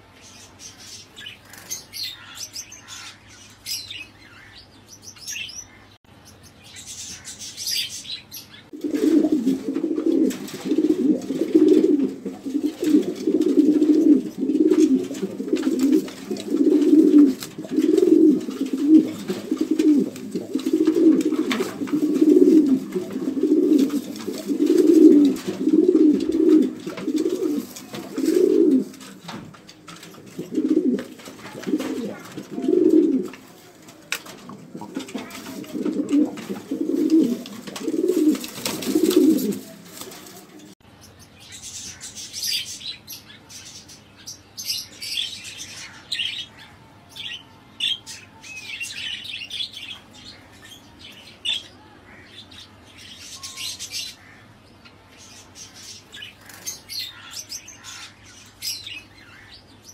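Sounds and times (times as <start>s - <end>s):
small birds chirping: 0.0s - 59.9s
pigeons cooing: 7.2s - 40.8s.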